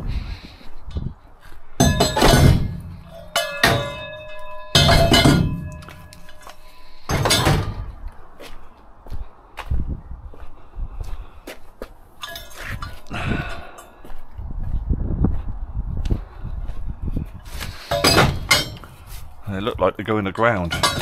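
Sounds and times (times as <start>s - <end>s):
metal ringing: 1.8s - 8.0s, 12.2s - 13.1s, 17.9s - 19.0s, 20.6s - 21.0s
metal scrap clanking: 1.8s - 8.0s, 12.2s - 13.1s, 17.8s - 19.0s, 20.6s - 21.0s.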